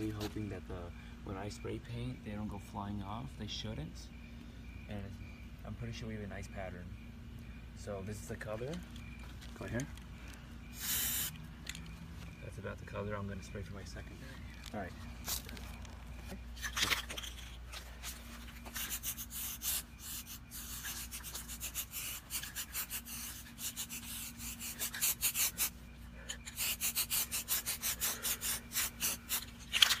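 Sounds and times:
spray paint can hissing: 0:10.8 - 0:11.4, 0:18.7 - 0:25.7, 0:26.5 - 0:30.0.

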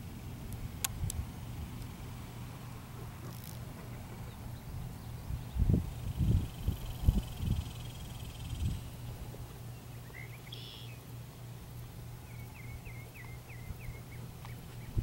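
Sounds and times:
low steady rumble: 0:00.0 - 0:15.0
bird chirping: 0:09.6 - 0:11.1, 0:12.2 - 0:15.0.

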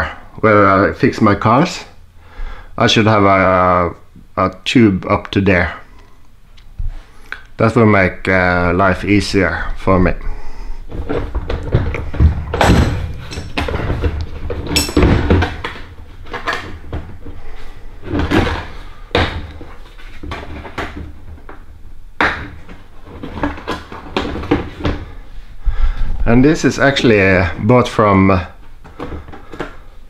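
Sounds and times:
plastic cases knocking and scraping: 0:10.9 - 0:25.2, 0:28.8 - 0:29.9.

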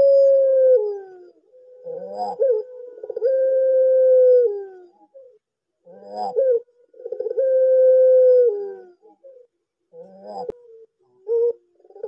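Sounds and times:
dove cooing: 0:00.0 - 0:12.0.

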